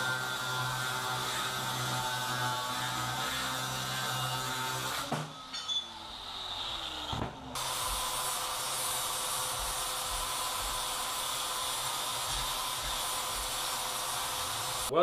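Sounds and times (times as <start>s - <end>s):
angle grinder winding down: 0.0s - 14.9s.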